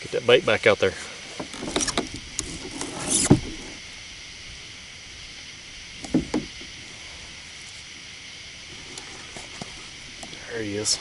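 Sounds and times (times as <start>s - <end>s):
high background hiss: 0.0s - 11.0s
thumps and knocks on plastic kayak: 6.0s - 6.7s.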